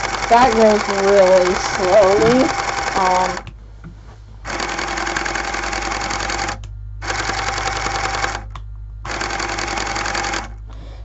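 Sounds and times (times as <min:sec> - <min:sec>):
electric motor whirring: 0:00.0 - 0:03.5.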